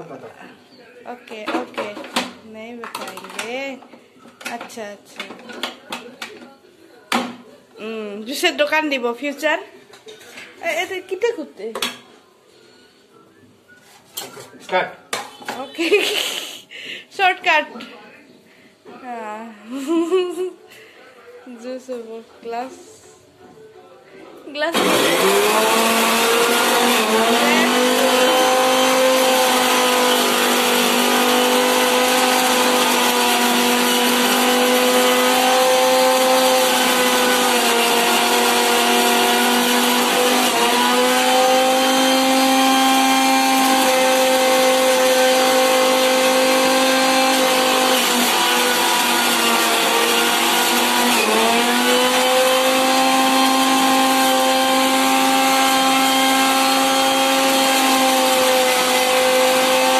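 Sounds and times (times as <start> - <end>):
juicer motor whining: 24.7 - 59.9.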